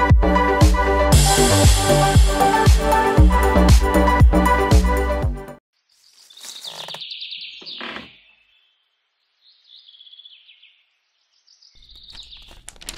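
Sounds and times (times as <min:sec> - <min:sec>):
bird chirping: 0:05.8 - 0:12.8.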